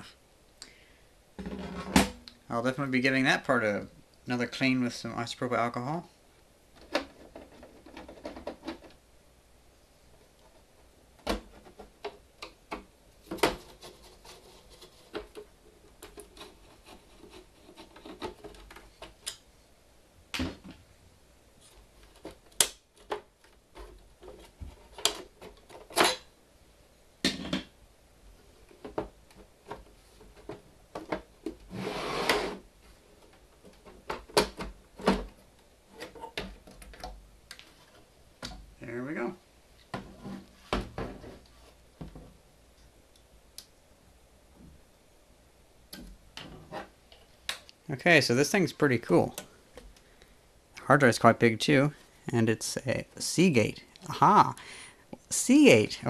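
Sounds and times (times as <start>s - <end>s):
scrape: 13.6s - 15.3s, 16.4s - 18.2s, 31.7s - 32.6s.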